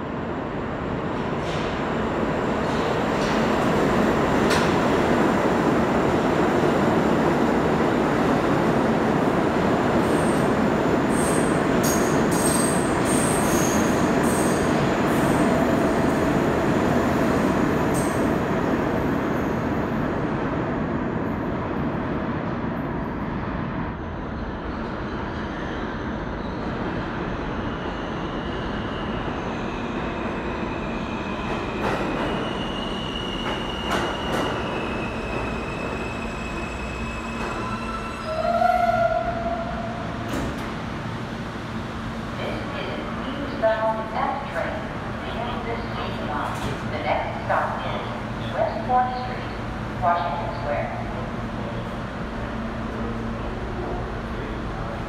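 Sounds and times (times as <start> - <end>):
subway train rolling roar: 0.0 - 55.0
train wheels squealing: 11.1 - 14.6, 27.6 - 39.3.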